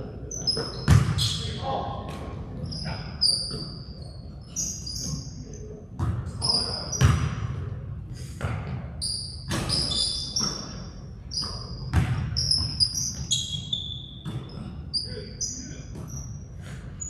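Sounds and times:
sneaker squeaks: 0.2s - 7.5s, 8.4s - 17.0s
basketball bouncing: 0.8s - 1.2s, 6.0s - 6.2s, 7.0s - 7.4s, 8.4s - 8.8s, 11.3s - 13.4s, 14.2s - 14.7s.

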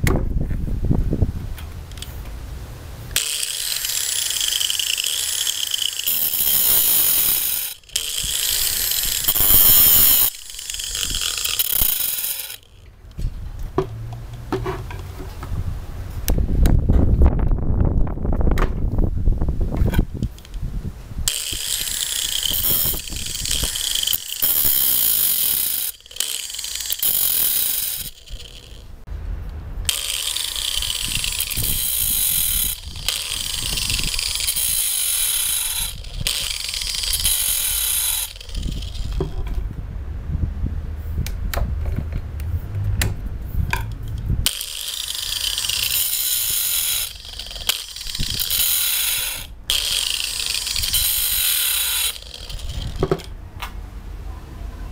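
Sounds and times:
angle grinder grinding metal: 3.1s - 15.2s, 21.3s - 29.0s, 29.9s - 39.6s, 43.8s - 53.3s.

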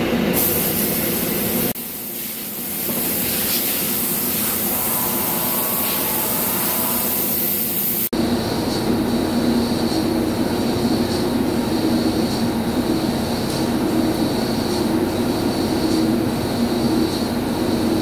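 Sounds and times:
machinery hiss: 0.0s - 18.0s
heavy machinery droning: 4.0s - 7.6s.

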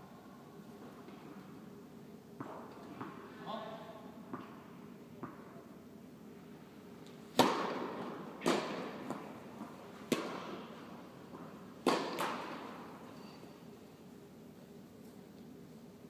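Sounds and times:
tennis ball pops echoing indoors: 2.4s - 3.2s, 4.3s - 5.7s, 7.3s - 13.0s.

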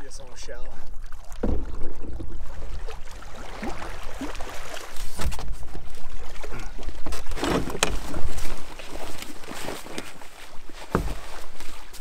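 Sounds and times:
water lapping and splashing: 0.0s - 12.0s
gear and hull knocking: 1.4s - 2.3s.

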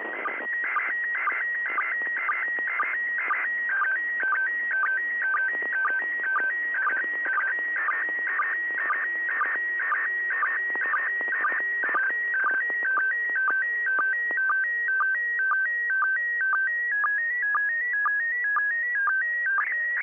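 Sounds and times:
radio crackles: 0.0s - 3.4s, 4.2s - 13.6s.

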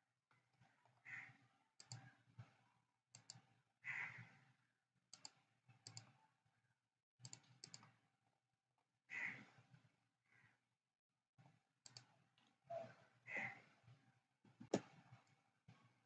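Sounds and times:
computer mouse clicks: 1.8s - 2.1s, 3.2s - 3.5s, 5.1s - 6.2s, 7.2s - 8.0s, 11.8s - 12.1s.

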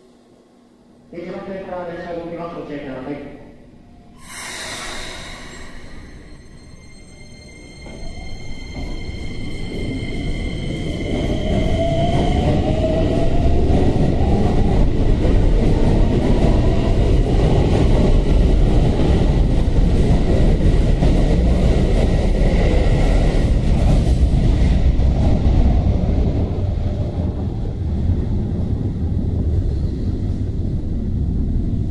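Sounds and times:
train wheels rumbling on rails: 7.6s - 31.9s.

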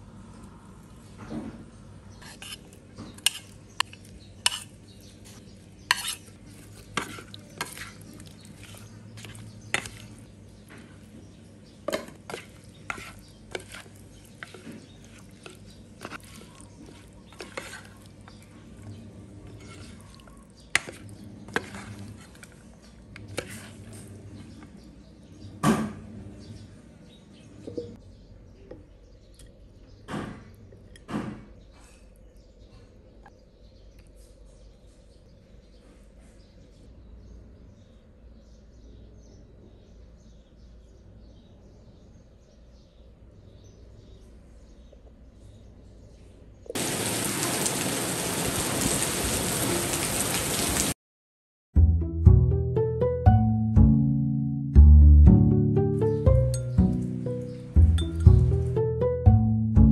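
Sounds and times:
spoon scraping pan: 2.1s - 11.1s, 11.8s - 24.7s
spoon tapping plate: 57.9s - 58.4s.

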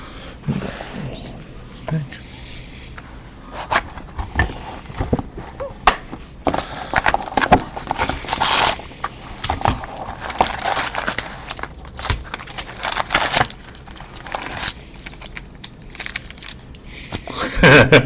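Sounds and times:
plastic and foil wrappers crinkling: 3.5s - 17.4s.

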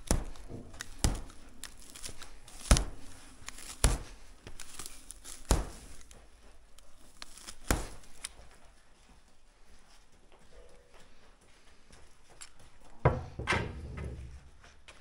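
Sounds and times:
sharp jerks of baling twine: 0.0s - 6.2s, 6.8s - 8.4s
dry hay rustling and crackling: 0.0s - 10.0s.

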